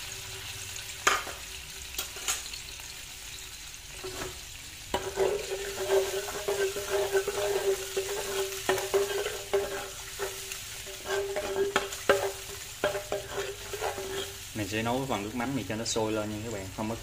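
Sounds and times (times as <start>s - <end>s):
sauce sizzling in frying pan: 0.0s - 17.0s
spatula stirring in pan: 3.9s - 14.6s.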